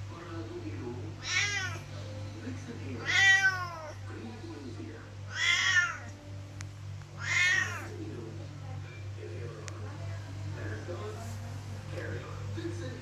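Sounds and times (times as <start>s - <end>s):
cat meowing loudly: 1.2s - 1.8s, 3.0s - 3.9s, 5.3s - 6.1s, 7.2s - 7.9s.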